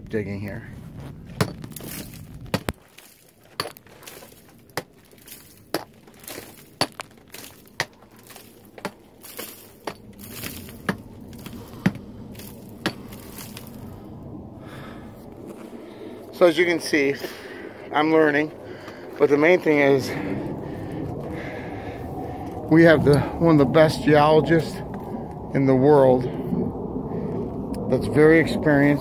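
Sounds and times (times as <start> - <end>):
metal tool chipping rock: 1.4 - 13.7.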